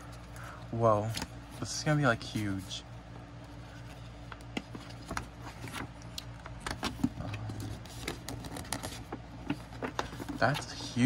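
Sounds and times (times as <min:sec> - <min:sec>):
faint low hum: 0:00.0 - 0:11.0
paper poster crinkling: 0:06.8 - 0:11.0.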